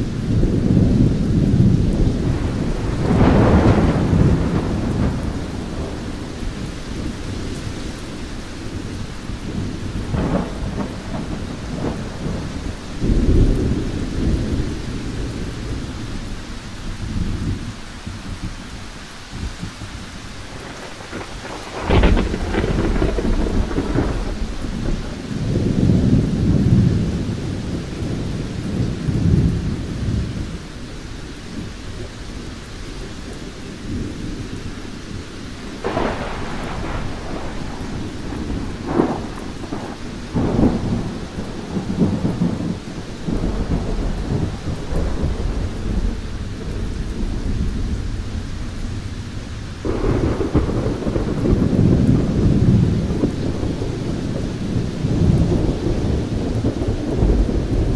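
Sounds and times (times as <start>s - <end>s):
thunder rumbling: 0.0s - 18.6s, 19.3s - 57.9s
steady rain: 0.0s - 57.9s
sharp thunder cracks: 0.5s - 7.8s, 9.5s - 16.0s, 20.5s - 27.1s, 35.8s - 48.4s, 49.8s - 57.9s.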